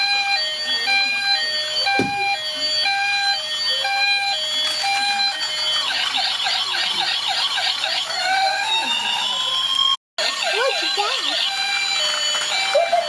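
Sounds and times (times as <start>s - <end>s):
toy police siren: 0.0s - 13.0s.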